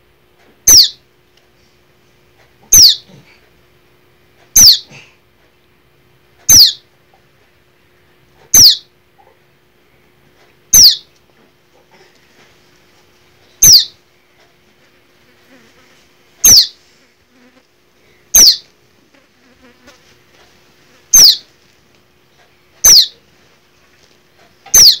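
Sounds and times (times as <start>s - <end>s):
fledgling bird peeping: 0.7s - 1.0s, 2.7s - 3.1s, 4.6s - 4.9s, 6.5s - 6.9s, 8.5s - 8.9s, 10.7s - 11.1s, 13.5s - 14.1s, 16.4s - 16.8s, 18.2s - 18.7s, 21.0s - 21.5s, 22.6s - 23.2s, 24.6s - 25.0s.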